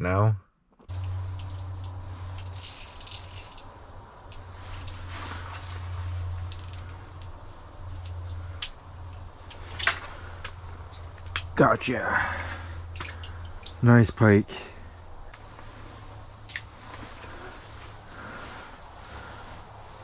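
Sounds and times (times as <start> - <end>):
steady low hum: 0.9 - 20.0
fishing reel cranking: 2.4 - 3.7, 6.5 - 7.3.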